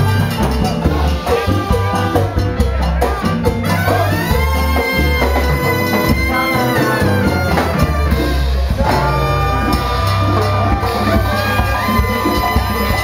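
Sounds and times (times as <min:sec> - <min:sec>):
congas: 0:00.0 - 0:13.0
salsa band playing: 0:00.0 - 0:13.0
lead vocal singing: 0:08.7 - 0:13.0.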